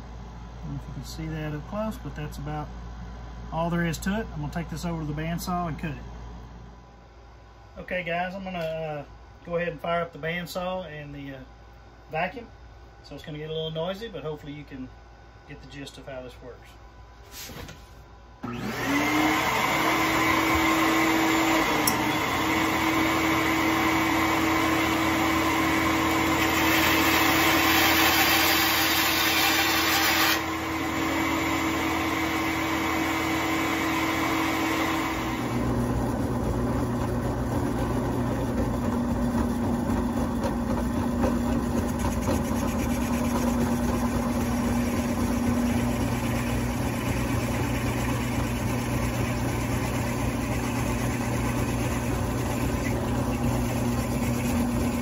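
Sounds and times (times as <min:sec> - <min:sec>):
shop vacuum running: 0:00.0 - 0:11.5, 0:15.5 - 0:55.0
low machine hum: 0:00.0 - 0:55.0
bandsaw running: 0:18.4 - 0:55.0.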